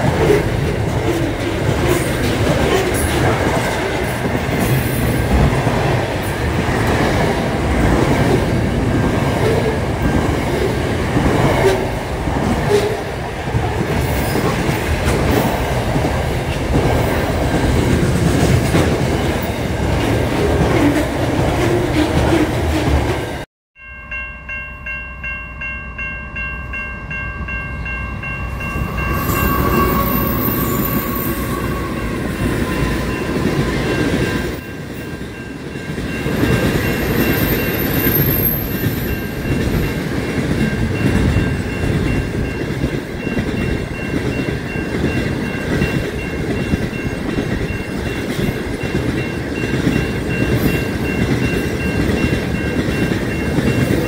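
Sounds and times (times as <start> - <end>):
freight train passing: 0.0 - 54.0
train passing level crossing: 0.0 - 54.0
high ringing crossing bell tones: 23.8 - 54.0.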